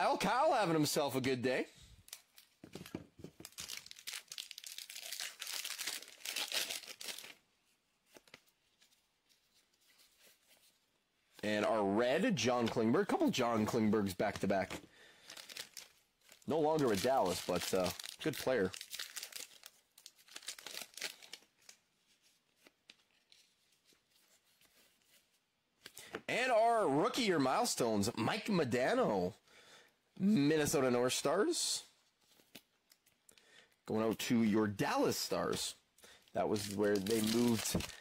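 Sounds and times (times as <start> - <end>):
card pack wrapper tearing: 2.1 - 7.4, 14.1 - 21.8, 36.4 - 38.0
cards rustling and clicking: 36.4 - 38.0.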